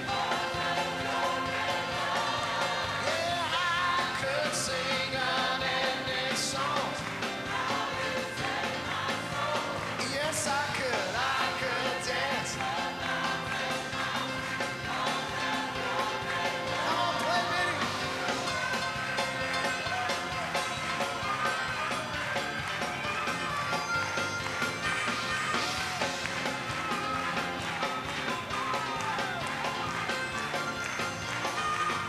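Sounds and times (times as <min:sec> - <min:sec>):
live worship band music: 0:00.0 - 0:32.0
harmonica lead line: 0:13.1 - 0:32.0.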